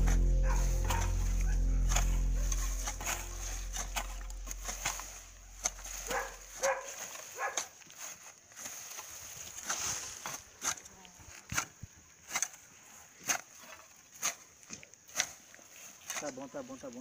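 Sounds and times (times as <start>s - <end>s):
low steady hum: 0.0s - 6.9s
hoes chopping into soil: 3.0s - 16.5s.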